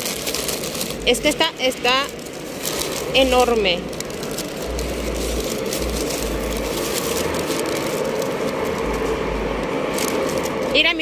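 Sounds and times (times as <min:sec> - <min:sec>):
paper wrapper crinkling: 0:00.0 - 0:11.0
steady background hum: 0:00.0 - 0:11.0.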